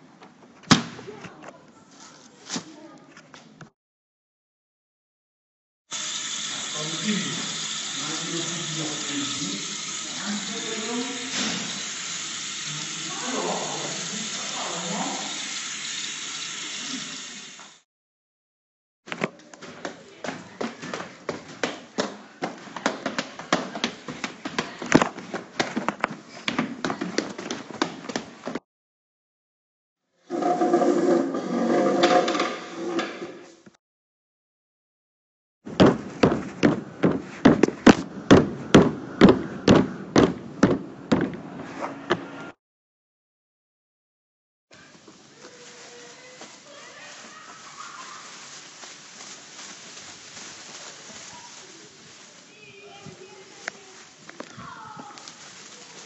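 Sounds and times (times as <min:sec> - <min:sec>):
tap water running into basin: 0:05.9 - 0:17.8
footsteps on stairs: 0:19.1 - 0:28.6, 0:35.7 - 0:42.3
hollow knocks on plastic: 0:35.7 - 0:41.4.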